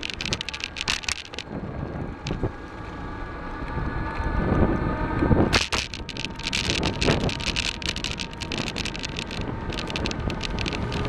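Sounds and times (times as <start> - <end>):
sharp rattles: 0.0 - 2.5, 5.5 - 11.0
vehicle rumbling over brick paving: 0.0 - 11.0
wind buffeting microphone: 0.0 - 11.0.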